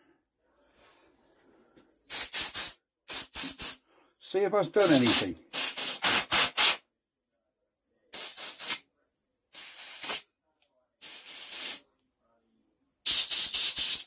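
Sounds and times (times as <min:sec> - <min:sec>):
compressed air blow gun hissing: 0:02.1 - 0:03.8, 0:04.8 - 0:06.8, 0:09.6 - 0:10.2, 0:11.0 - 0:11.8, 0:13.1 - 0:14.0.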